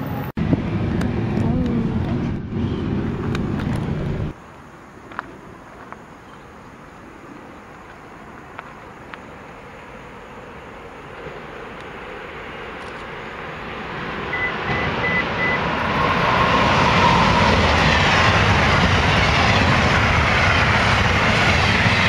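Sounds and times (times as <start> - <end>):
train passing at speed: 0.0 - 5.8, 6.9 - 22.0
short high beeps: 14.4 - 15.6.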